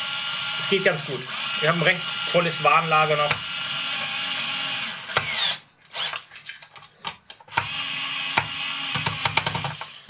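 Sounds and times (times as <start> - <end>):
cordless screwdriver whirring: 3.2 - 6.3, 7.5 - 10.0.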